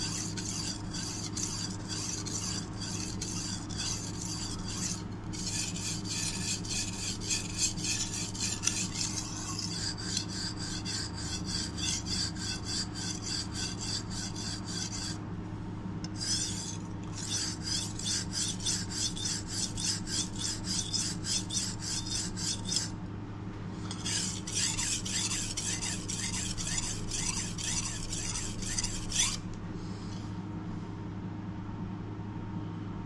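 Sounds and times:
knife scraping on whetstone: 0.0s - 15.2s, 16.1s - 23.0s, 23.8s - 29.4s.

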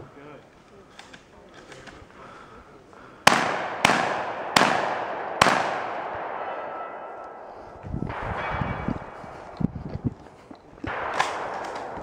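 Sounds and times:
shotgun shots echoing: 3.2s - 12.0s.

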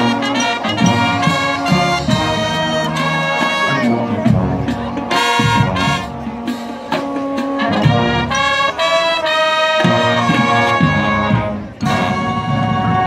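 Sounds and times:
brass chords: 0.0s - 13.0s
marching band playing: 0.0s - 13.0s.

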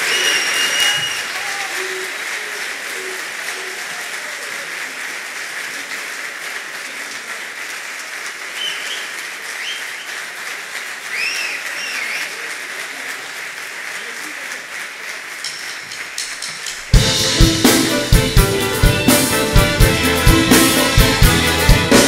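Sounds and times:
crowd whistling: 0.0s - 4.7s, 8.5s - 10.3s, 11.1s - 12.5s
audience applauding: 0.0s - 22.0s.

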